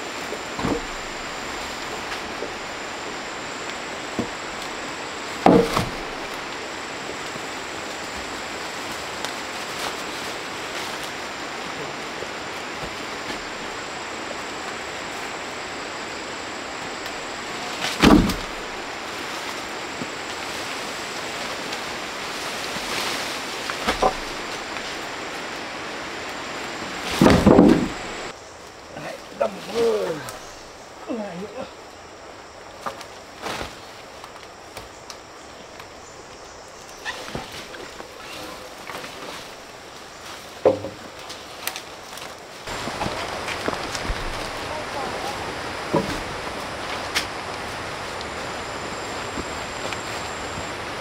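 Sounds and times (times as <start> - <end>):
steady rushing background noise: 0.0 - 51.0
wooden planks clunking down: 0.4 - 2.7, 4.1 - 6.6, 17.7 - 18.8, 22.6 - 25.0, 27.0 - 28.2, 40.3 - 47.6.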